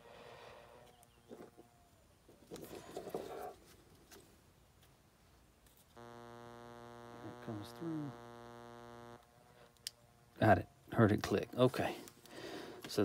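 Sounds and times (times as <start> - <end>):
electrical hum: 6.0 - 10.7.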